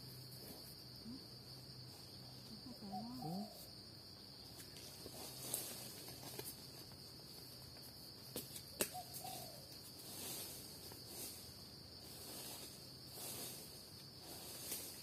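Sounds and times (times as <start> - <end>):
insects droning: 0.0 - 15.0
bird call: 8.9 - 9.6.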